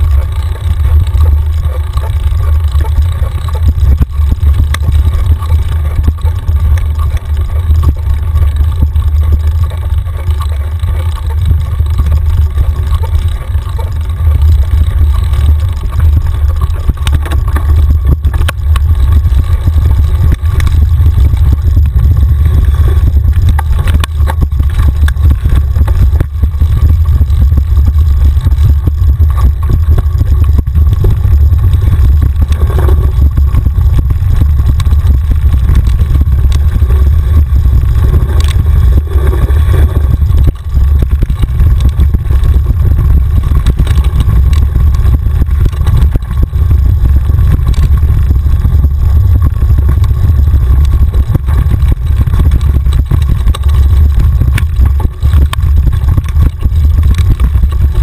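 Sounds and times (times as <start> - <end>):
bike rattling and knocking: 0.0 - 58.0
wind rumble on microphone: 0.0 - 58.0.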